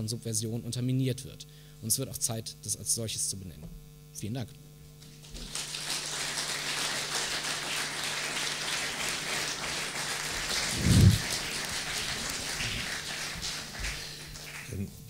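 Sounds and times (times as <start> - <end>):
audience applauding: 5.2 - 14.9.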